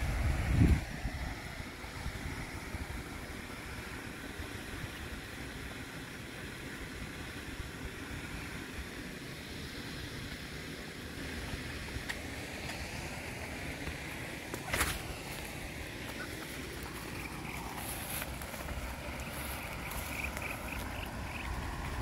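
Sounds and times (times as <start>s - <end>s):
wind buffeting microphone: 0.0s - 4.9s, 11.3s - 22.0s.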